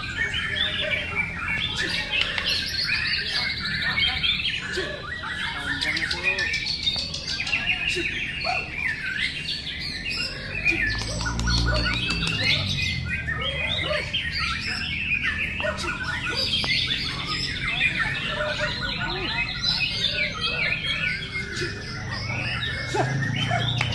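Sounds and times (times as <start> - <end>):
songbirds singing whistles: 0.0 - 23.9.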